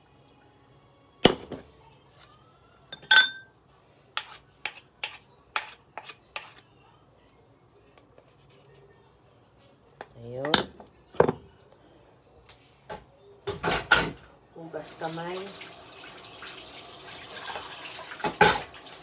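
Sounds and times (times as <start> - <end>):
ringing clink: 3.0 - 3.5
wooden spatula scraping a saucepan: 4.1 - 6.6.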